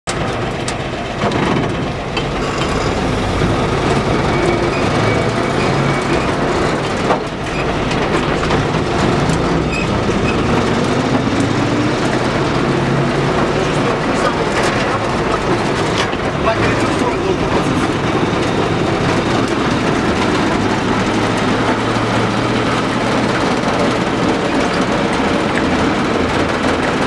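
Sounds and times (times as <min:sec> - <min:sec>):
cab and road noise: 0:00.1 - 0:27.0
truck engine running: 0:00.1 - 0:27.0.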